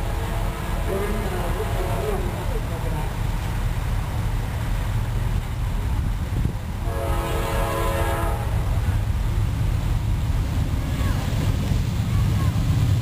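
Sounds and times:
locomotive air horn blast: 0.0s - 2.4s, 6.8s - 8.8s
steady low train rumble: 0.0s - 13.0s.

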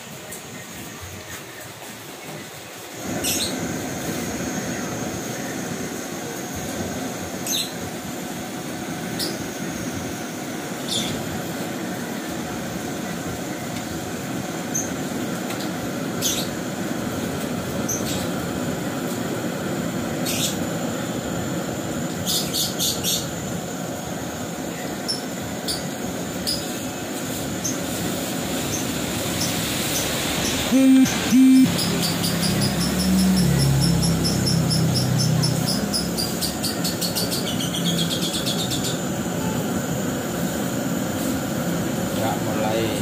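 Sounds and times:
burner and water rushing: 25.4s - 37.3s.

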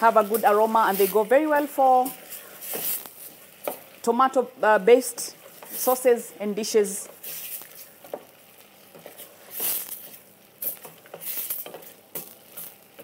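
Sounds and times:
tomatoes sizzling: 0.0s - 13.0s
wooden spoon scraping pot: 0.1s - 4.0s.

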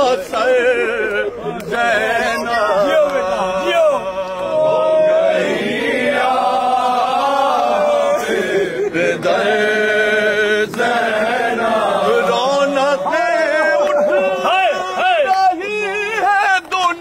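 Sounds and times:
man chanting unaccompanied: 0.0s - 5.3s, 9.5s - 17.0s.

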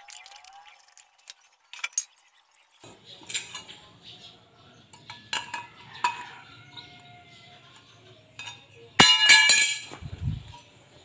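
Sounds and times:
sheet metal pieces clinking: 8.4s - 10.0s.

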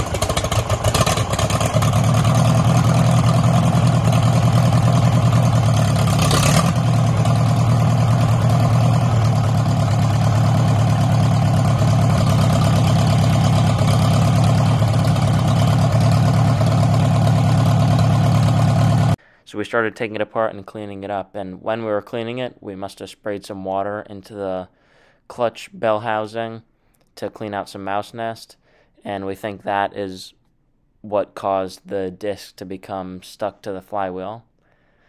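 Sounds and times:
tractor engine running: 0.0s - 19.2s.

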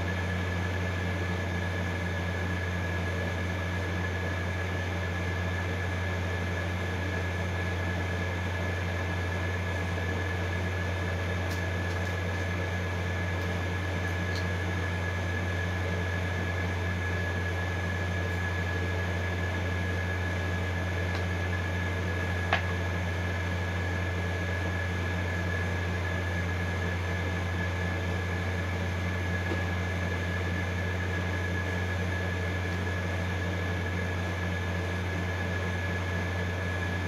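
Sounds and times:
appliance humming and whining: 0.0s - 37.0s.

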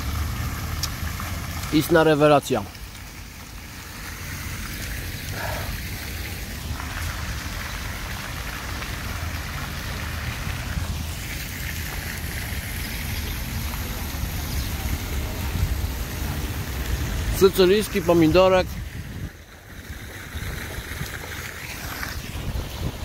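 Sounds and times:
even hiss: 0.0s - 8.0s
wind rumbling on microphone: 4.5s - 17.4s, 18.0s - 23.0s.

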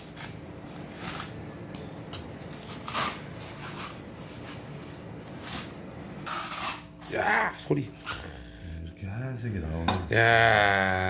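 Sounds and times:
faint steady hum: 0.0s - 11.0s
knife rasping along fish skin: 2.6s - 4.7s, 6.3s - 7.1s.

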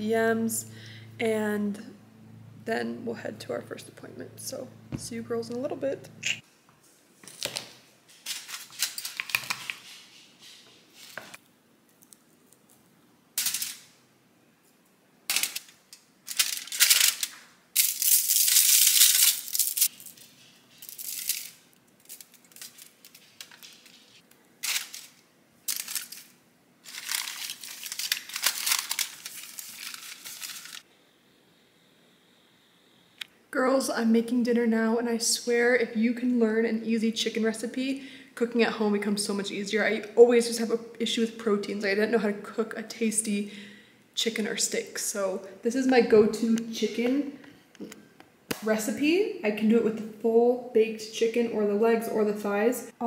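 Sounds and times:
aluminium foil crinkling: 7.3s - 10.0s, 15.3s - 30.8s.

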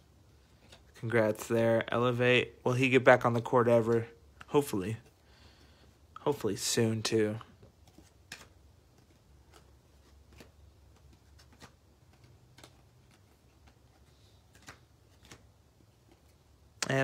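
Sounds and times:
soft clicks of cards flipped: 7.7s - 17.0s.

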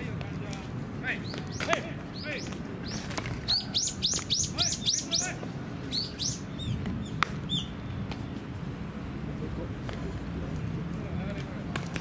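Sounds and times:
bird chirping: 1.2s - 8.0s.

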